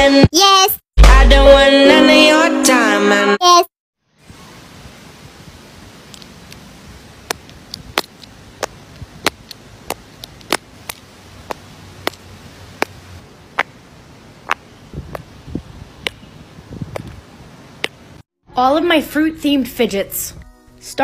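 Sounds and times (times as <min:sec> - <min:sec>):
faint steady hiss: 0:04.1 - 0:18.2.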